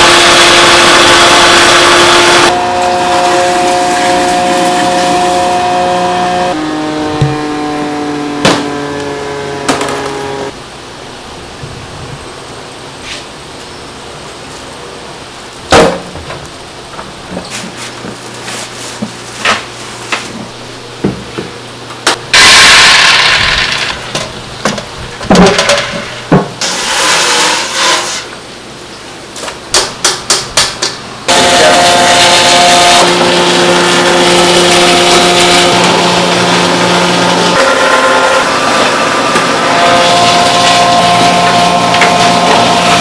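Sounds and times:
machine motor humming: 0:00.0 - 0:10.6.

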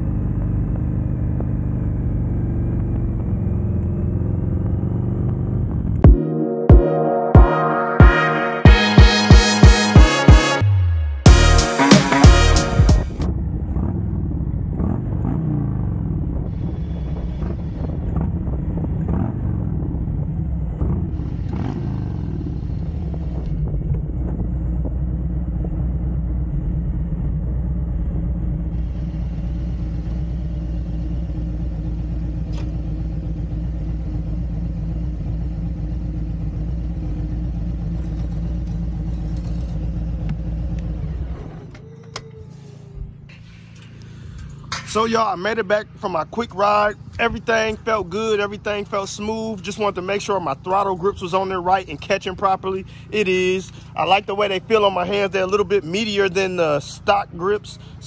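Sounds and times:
motorcycle engine running: 0:00.0 - 0:06.2, 0:10.6 - 0:42.0, 0:42.8 - 0:58.0.

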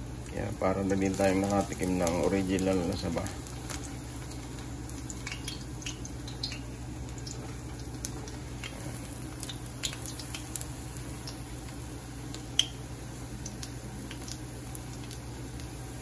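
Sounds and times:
fritters sizzling in oil: 0:00.0 - 0:16.0
steady low hum: 0:00.0 - 0:16.0.

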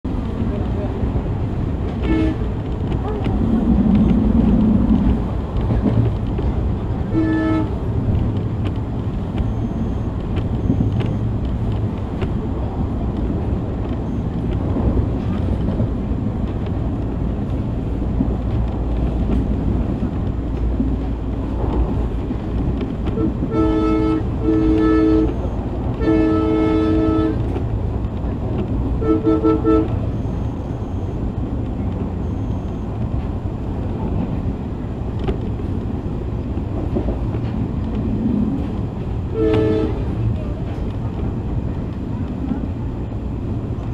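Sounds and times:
train wheels rumbling: 0:00.1 - 0:43.9
train horn blasts: 0:02.0 - 0:02.6, 0:07.0 - 0:07.8, 0:23.1 - 0:27.6, 0:29.0 - 0:30.3, 0:39.3 - 0:40.2.

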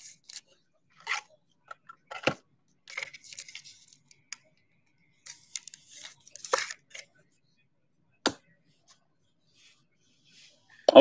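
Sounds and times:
cards rustling and sliding: 0:02.0 - 0:04.1, 0:05.2 - 0:07.1.

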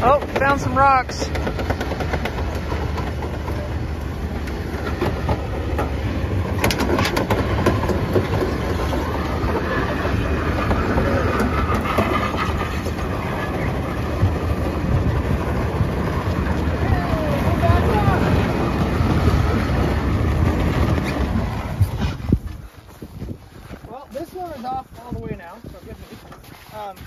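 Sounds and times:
sharp clicks and clanks: 0:00.0 - 0:16.7
diesel truck engine rumbling: 0:00.0 - 0:22.5.

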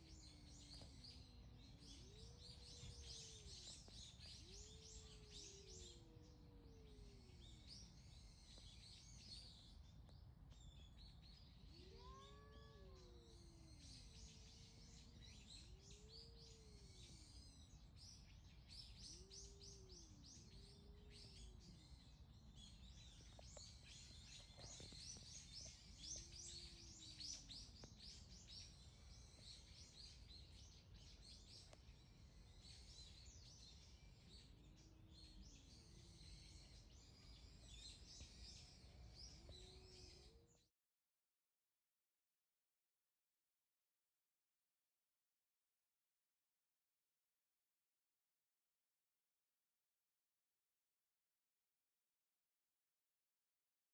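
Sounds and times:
birds chirping: 0:00.0 - 0:09.8, 0:11.6 - 0:40.4
cat yowling: 0:11.7 - 0:13.7.

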